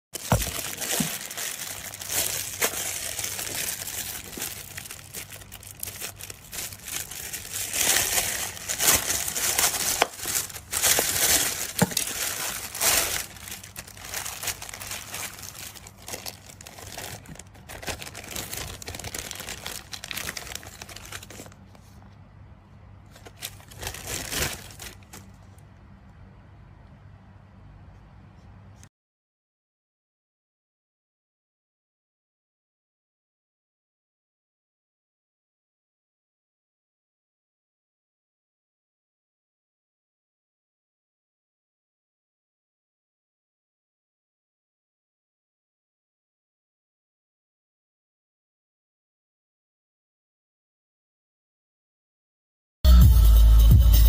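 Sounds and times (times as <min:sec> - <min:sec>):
plastic bag crinkling: 0:00.2 - 0:22.0, 0:23.1 - 0:25.4.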